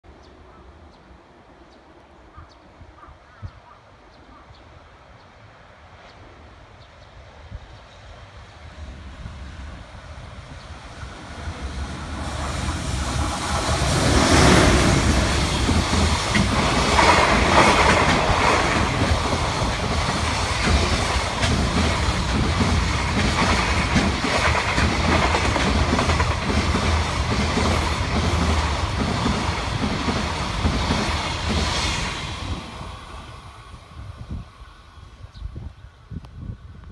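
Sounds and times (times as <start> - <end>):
electric locomotive passing: 5.3 - 36.1
wheel clatter over rail joints: 12.2 - 31.8.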